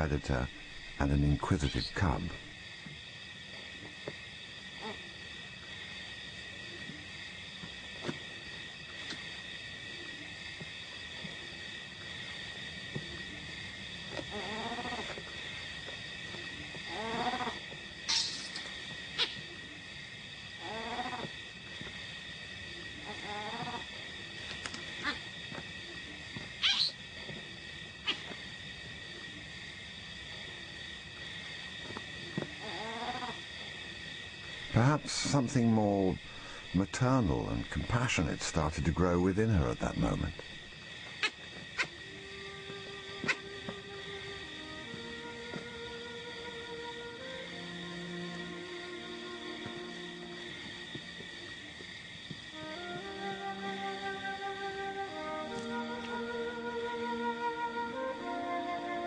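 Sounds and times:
crickets trilling: 0:00.0 - 0:59.0
night insects chorus: 0:00.0 - 0:59.0
baby baboon crying: 0:26.6 - 0:27.0.

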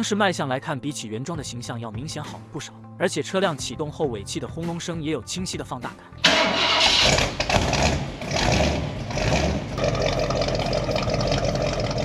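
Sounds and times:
car engine starting and revving: 0:06.2 - 0:12.0
engine idling with exhaust rumble: 0:07.1 - 0:12.0.

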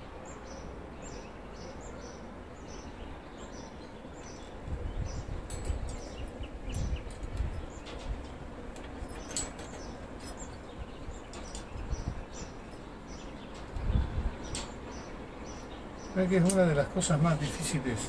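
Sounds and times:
birds chirping: 0:00.0 - 0:18.0
clicks and knocks of tools: 0:05.5 - 0:10.6, 0:11.3 - 0:11.9, 0:14.5 - 0:14.8.

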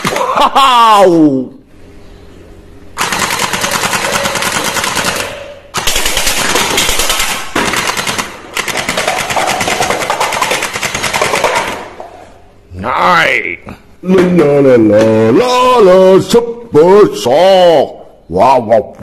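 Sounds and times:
gel ball blaster rapid fire: 0:00.0 - 0:00.4, 0:03.0 - 0:12.0.

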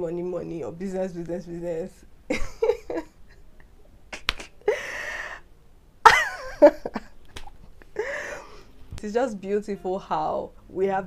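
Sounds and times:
woman laughing breathily: 0:02.3 - 0:05.4, 0:06.1 - 0:07.1, 0:07.8 - 0:08.7.

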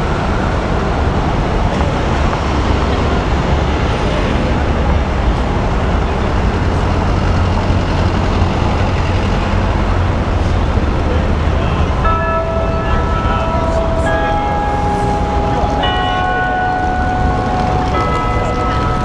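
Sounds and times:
city street traffic: 0:00.0 - 0:19.0.

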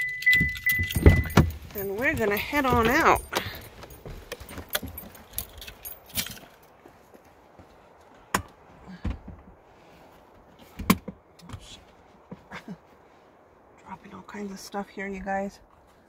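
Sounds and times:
sharp clicks and knocks: 0:00.0 - 0:06.6
car keys jangling: 0:00.0 - 0:06.8.

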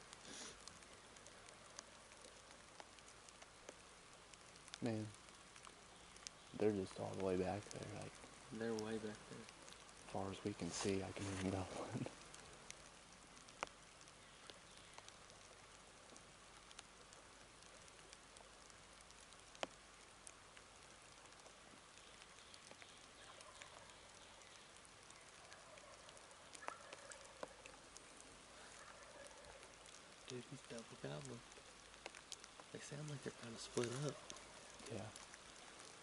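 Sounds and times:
light rain: 0:00.0 - 0:36.0
raindrop ticks: 0:00.0 - 0:36.0
distant turkeys gobbling: 0:23.2 - 0:31.0.

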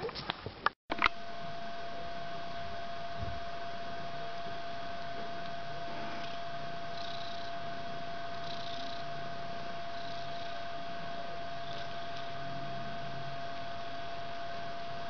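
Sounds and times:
electrical hum: 0:00.0 - 0:15.0
kitten purring: 0:05.0 - 0:13.4.

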